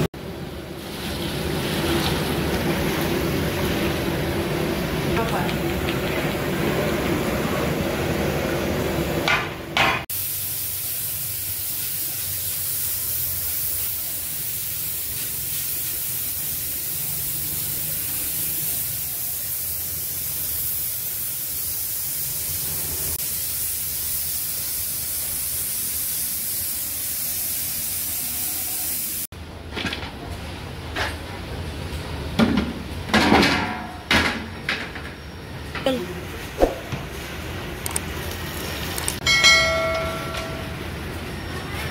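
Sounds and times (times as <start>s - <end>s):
high-pitched hiss: 10.1s - 29.3s.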